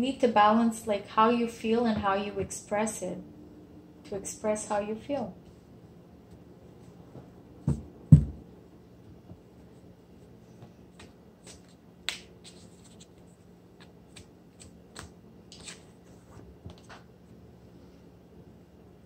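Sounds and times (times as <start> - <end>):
knock: 7.7 - 8.4
cards being shuffled: 10.9 - 17.0.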